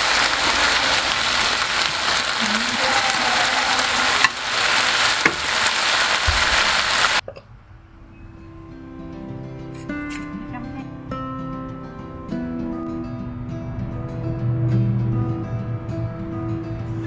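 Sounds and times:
food sizzling in a hot pan: 0.0 - 7.2.

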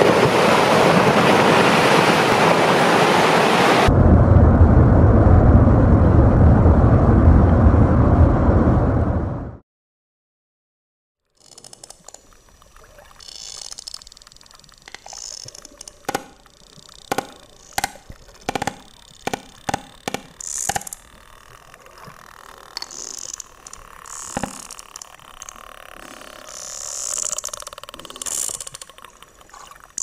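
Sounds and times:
sperm whales clicking underwater: 11.3 - 30.0
underwater water noise with hissing: 11.4 - 30.0.

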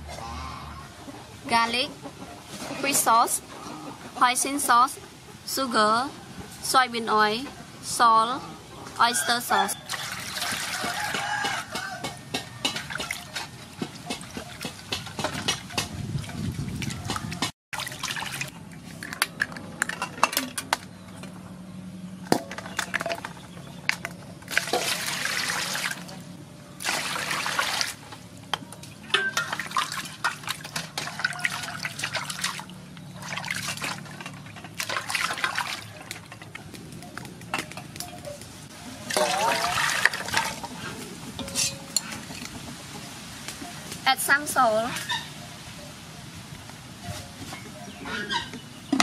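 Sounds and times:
water sloshing in a metal basin: 9.0 - 20.6, 22.4 - 45.4.

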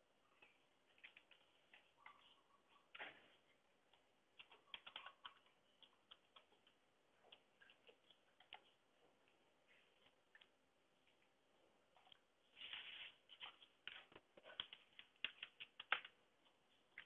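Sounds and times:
computer keyboard typing: 3.9 - 8.7, 14.0 - 16.2.

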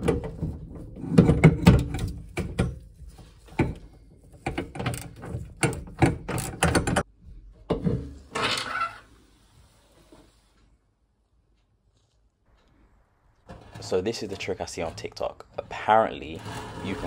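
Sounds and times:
short scraping: 13.5 - 17.0.

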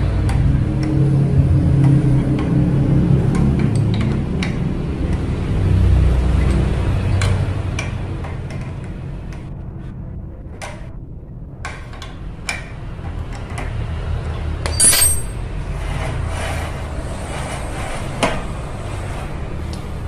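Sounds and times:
steady low rumble: 9.0 - 13.1
metallic clink and ring: 14.6 - 15.4
pliers clicking on metal nuts: 14.6 - 15.4.

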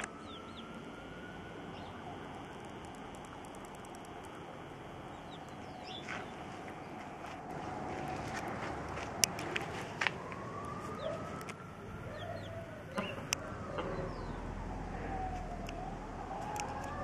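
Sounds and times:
chicks peeping: 0.0 - 0.7, 5.1 - 6.4, 10.8 - 14.4.

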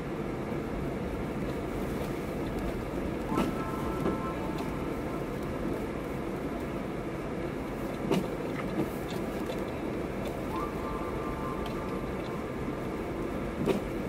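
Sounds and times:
car engine and tyres rumbling: 0.0 - 14.0
faint high tone: 3.2 - 5.8, 10.4 - 13.1.

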